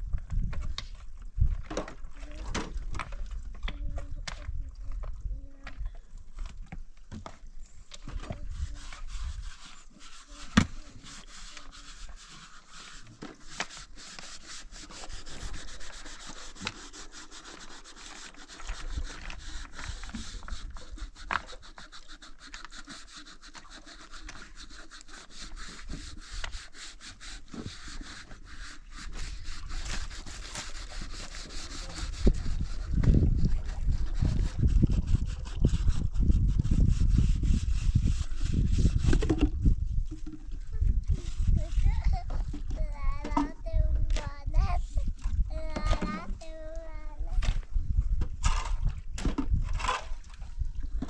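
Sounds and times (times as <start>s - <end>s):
hand-sanding rubbing and scraping: 8.0s - 47.6s.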